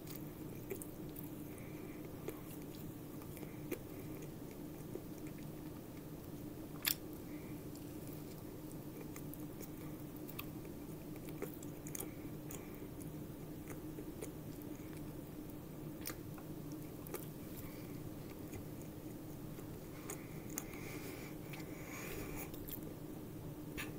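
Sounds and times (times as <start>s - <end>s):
person chewing: 0.0s - 6.1s, 6.8s - 22.9s
steady low hum: 0.0s - 23.9s.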